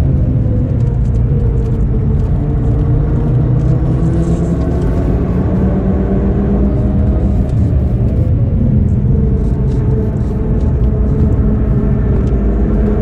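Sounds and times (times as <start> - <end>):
car engine revving up: 0.0 - 13.0.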